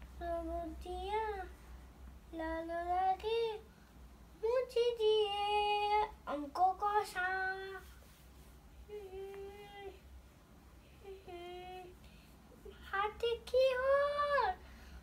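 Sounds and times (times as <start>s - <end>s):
young girl singing: 0.0s - 1.6s, 2.2s - 3.7s, 4.4s - 8.0s, 8.8s - 10.0s, 11.0s - 12.0s, 12.6s - 14.6s.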